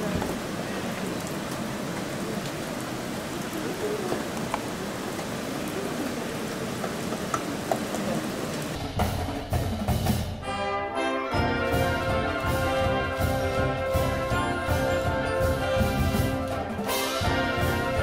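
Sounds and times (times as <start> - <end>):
rain-like outdoor hiss: 0.0 - 18.0
music with low drum beats: 8.8 - 10.4.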